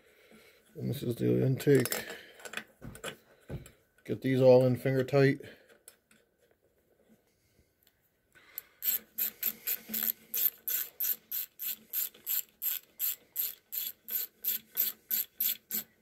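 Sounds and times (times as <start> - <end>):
ratchet pawl clicking: 8.8 - 15.9.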